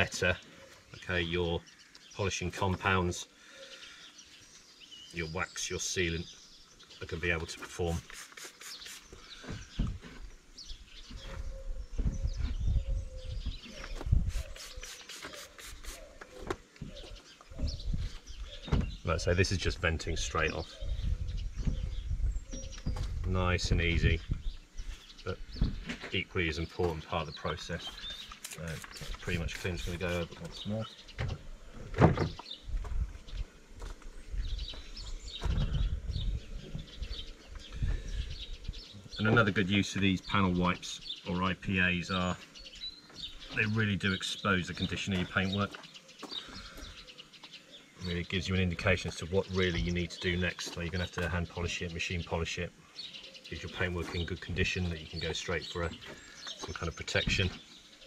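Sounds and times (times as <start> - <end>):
birds chirping: 0.0 - 58.0
cloth rubbing on car paint: 7.9 - 9.2, 14.2 - 16.4, 27.9 - 30.7.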